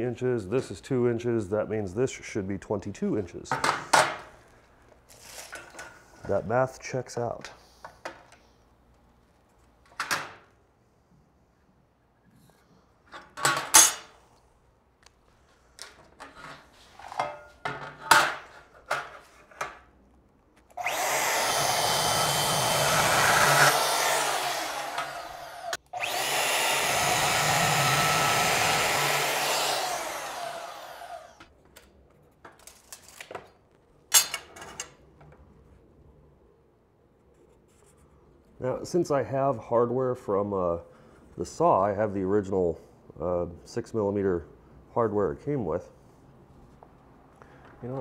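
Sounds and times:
bandsaw cutting metal bar: 20.8s - 31.4s.

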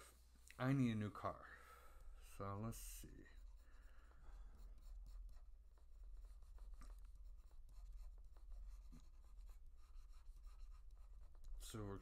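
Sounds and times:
stylus scratching on drawing tablet: 2.4s - 12.0s.

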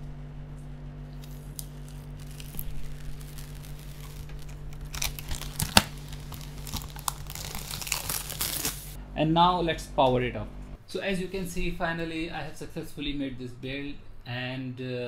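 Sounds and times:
plastic film crackling and tearing: 1.1s - 9.0s.

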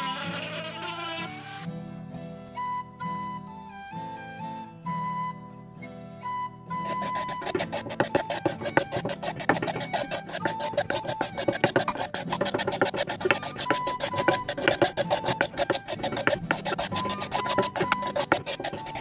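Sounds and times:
background music: 1.6s - 19.0s
knife scraping wooden shaft: 6.8s - 19.0s.

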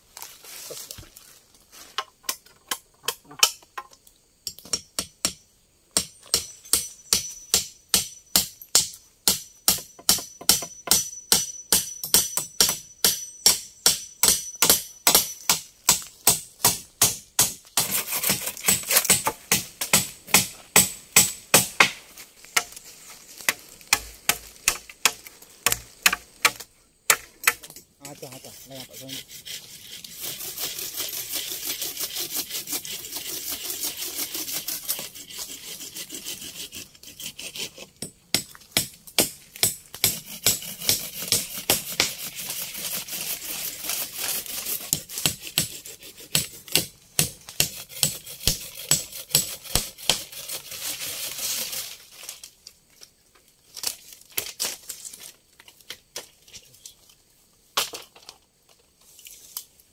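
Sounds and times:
tool scraping rustle: 0.0s - 3.9s, 14.4s - 59.9s.

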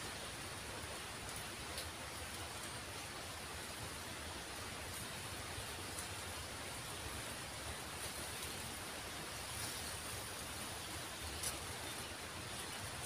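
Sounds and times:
faint outdoor hiss: 0.0s - 13.0s.

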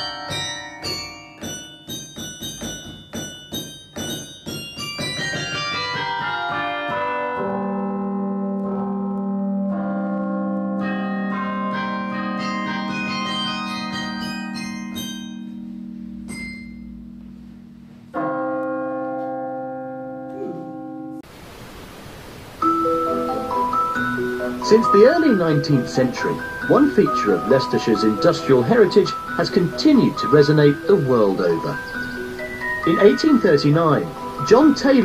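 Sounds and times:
carillon bells playing: 0.0s - 20.2s, 22.6s - 35.0s
steady hiss: 21.2s - 35.0s.

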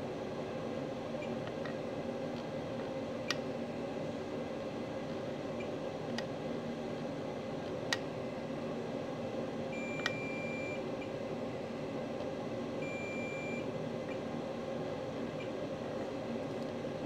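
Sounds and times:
steady background hum: 0.0s - 17.0s
multimeter continuity beeps: 9.7s - 10.8s, 12.8s - 13.7s.

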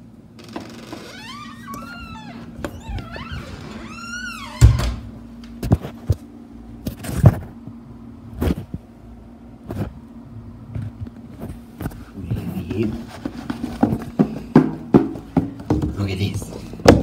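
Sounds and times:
steady low hum: 0.0s - 17.0s
squeak: 0.6s - 4.6s
knocks and thuds: 13.8s - 16.2s.

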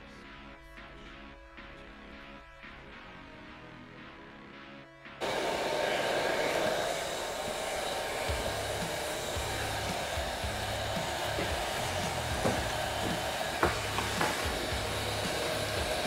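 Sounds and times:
heat gun blowing hiss: 5.2s - 16.0s.

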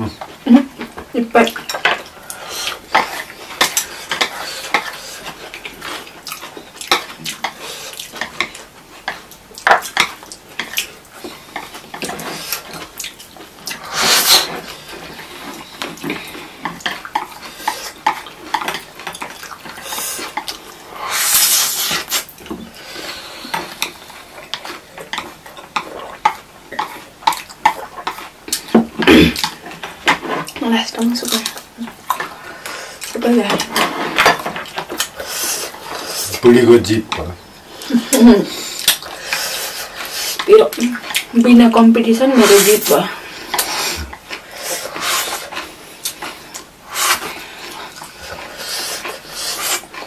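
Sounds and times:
chewing: 0.0s - 41.5s, 42.3s - 50.0s
slurping noodles: 13.7s - 18.6s, 19.4s - 24.9s, 31.5s - 36.5s, 37.8s - 41.3s, 42.3s - 50.0s.

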